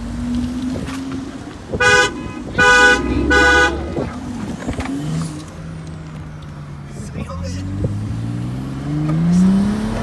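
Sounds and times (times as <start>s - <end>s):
car engine running: 0.0s - 8.2s
car horn honking: 1.7s - 4.1s.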